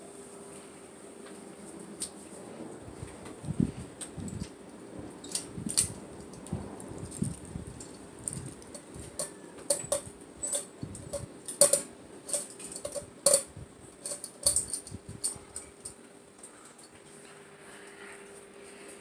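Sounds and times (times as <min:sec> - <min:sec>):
fan humming: 0:00.0 - 0:19.0
metal pull chain clicking and jingling: 0:07.0 - 0:16.0.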